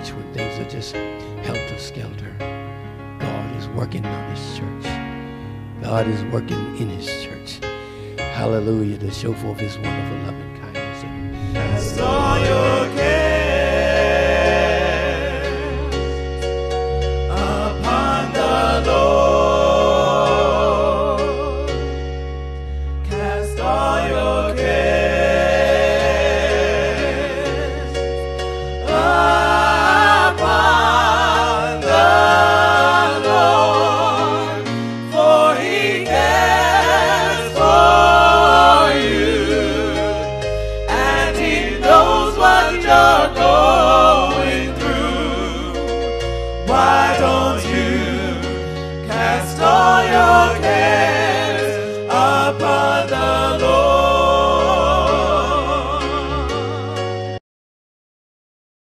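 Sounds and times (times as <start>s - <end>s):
steady bass notes: 10.8s - 14.8s
choir singing held notes: 10.9s - 16.1s, 17.2s - 21.9s, 23.1s - 28.0s, 28.8s - 57.1s.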